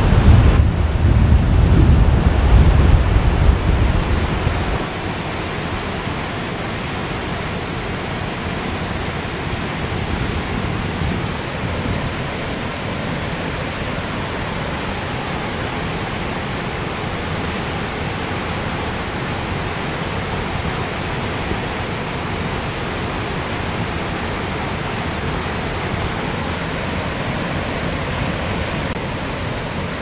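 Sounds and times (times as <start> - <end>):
deep low rumble: 0.0 - 4.9
water rushing and crashing down: 0.0 - 30.0.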